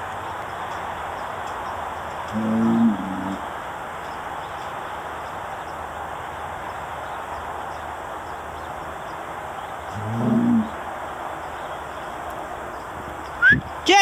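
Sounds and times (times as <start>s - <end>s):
steady background hiss: 0.0s - 14.0s
cow growling: 2.3s - 3.4s, 9.9s - 10.8s.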